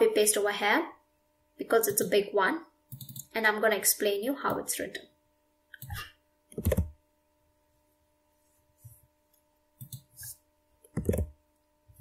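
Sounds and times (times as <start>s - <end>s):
faint electrical hum: 0.0s - 12.0s
mouse and keyboard clicks: 5.8s - 6.9s, 9.8s - 11.3s.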